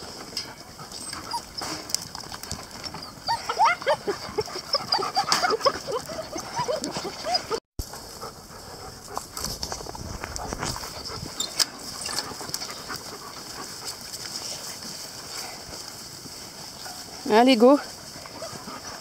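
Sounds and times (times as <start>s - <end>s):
puppies whining and yelping: 0.8s - 2.0s, 2.7s - 7.6s.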